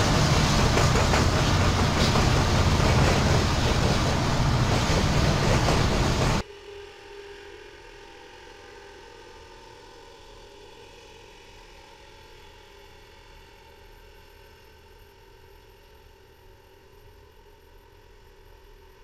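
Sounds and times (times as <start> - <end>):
track machine engine humming: 0.0 - 6.4.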